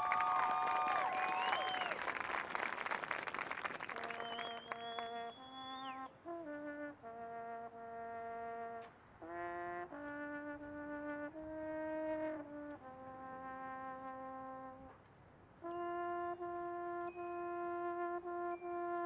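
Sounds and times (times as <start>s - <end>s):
marching band brass chords: 3.8s - 14.9s.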